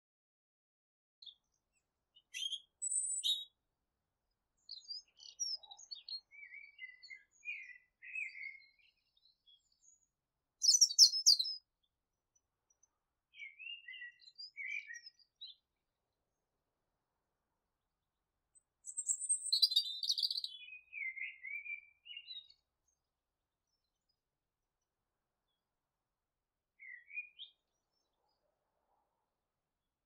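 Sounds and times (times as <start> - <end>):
small birds chirping: 1.2 - 3.6, 4.3 - 15.8, 18.5 - 25.9, 26.7 - 28.5.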